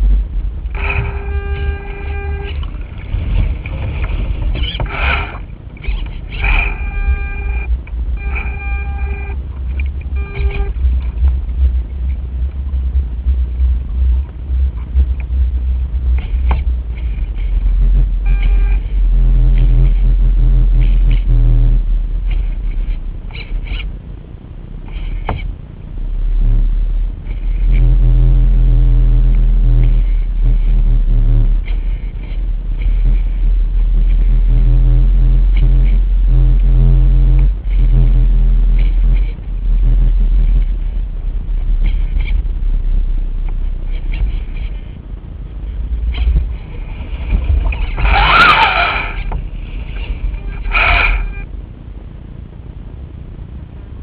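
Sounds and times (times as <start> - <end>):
wind buffeting microphone: 0.0 - 6.7
low hum with overtones: 0.0 - 54.0
steady pitched whine: 0.0 - 54.0.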